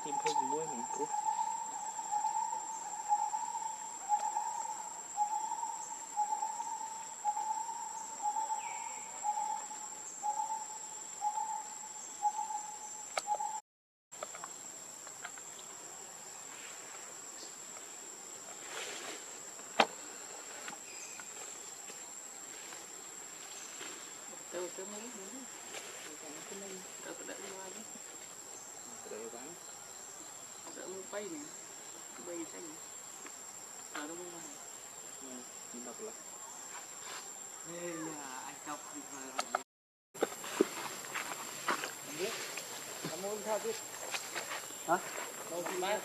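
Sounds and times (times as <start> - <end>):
bird hooting: 0.0 - 13.6
high-pitched insect whine: 0.0 - 13.6, 14.2 - 39.6, 40.2 - 46.0.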